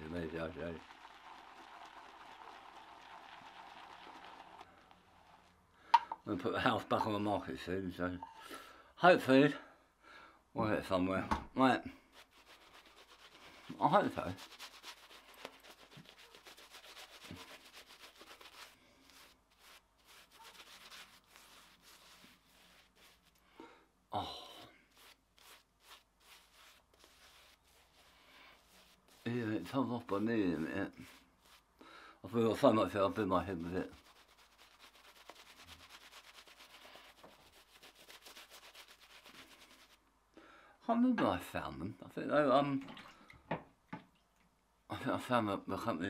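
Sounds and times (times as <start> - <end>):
shaving brush strokes on stubble: 0.1 - 5.6, 12.0 - 23.5, 24.6 - 31.7, 32.6 - 40.0.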